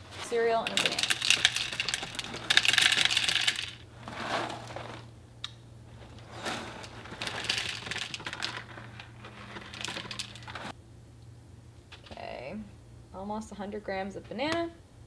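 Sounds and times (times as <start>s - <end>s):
cereal rattling into a bowl: 0.2s - 5.1s, 6.0s - 10.7s.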